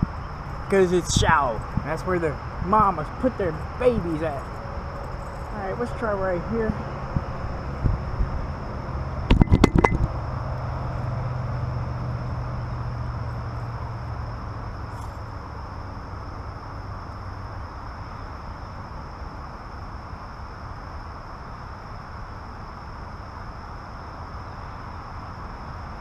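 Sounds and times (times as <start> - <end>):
steady low rumble: 0.0 - 18.0
camera handling knocks and clatter: 9.3 - 10.1.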